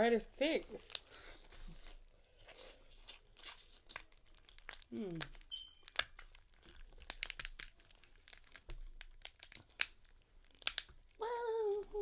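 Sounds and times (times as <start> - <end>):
lobster shells cracking: 0.4 - 1.2, 3.4 - 11.2
person humming: 4.9 - 5.3, 11.2 - 12.0.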